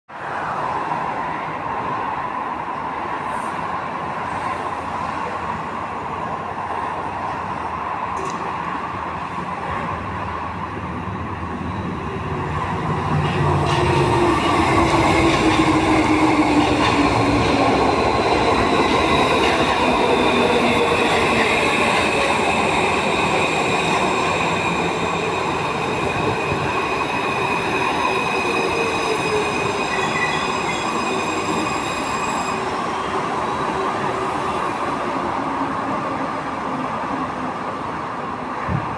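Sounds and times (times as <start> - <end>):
metro train braking: 8.2 - 38.0.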